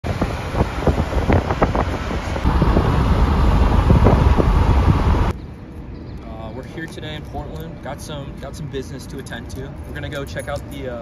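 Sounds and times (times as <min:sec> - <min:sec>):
wind buffeting microphone: 0:00.0 - 0:05.4
traffic noise: 0:00.0 - 0:11.0.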